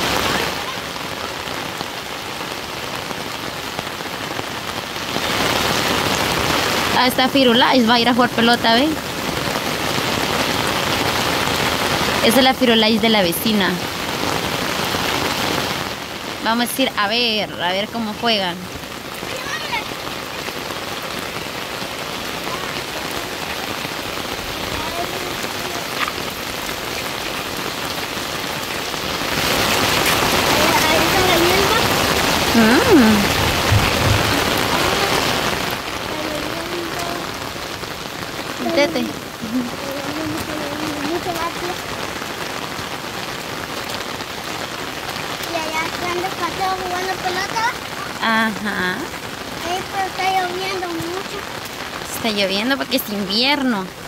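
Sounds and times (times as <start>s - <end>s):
rain falling: 0.0s - 54.0s.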